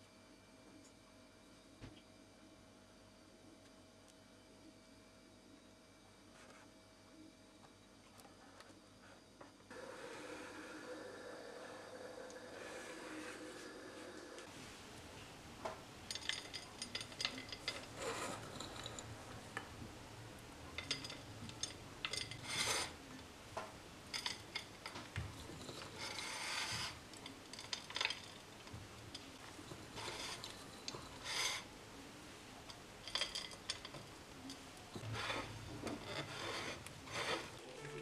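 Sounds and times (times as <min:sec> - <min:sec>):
nut pieces clicking on metal rack: 0:24.1 - 0:31.7, 0:32.7 - 0:35.1.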